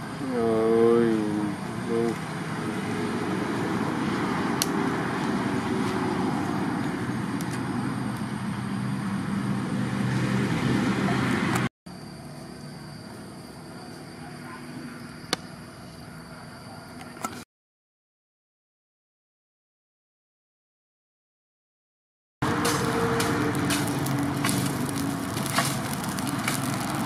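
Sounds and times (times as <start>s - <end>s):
fire hissing: 0.0s - 14.1s, 22.4s - 27.0s
steady noise with low hum: 0.0s - 17.4s
burning logs crackling: 0.5s - 10.8s, 22.4s - 27.0s.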